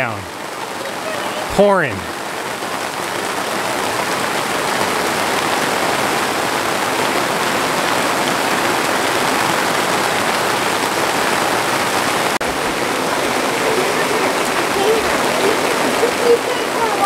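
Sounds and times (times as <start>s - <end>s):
heavy rain on trees and grass: 0.0s - 17.0s.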